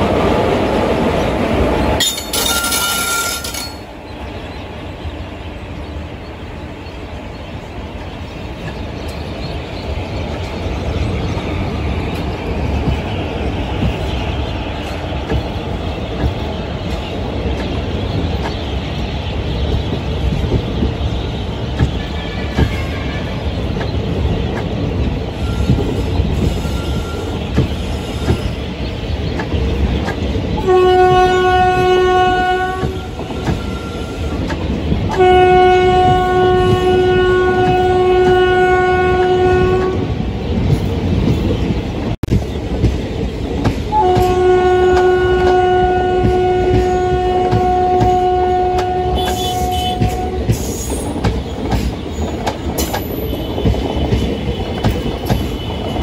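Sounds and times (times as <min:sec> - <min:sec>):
train wheels clickety-clack: 0:07.9 - 0:56.0
locomotive horn blasts: 0:30.6 - 0:34.4, 0:35.1 - 0:40.1, 0:43.9 - 0:50.6.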